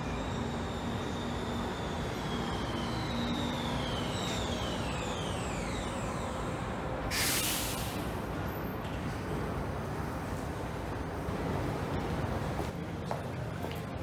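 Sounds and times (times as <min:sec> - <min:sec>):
metro train running: 0:00.0 - 0:14.0
short loud hiss: 0:07.1 - 0:08.0.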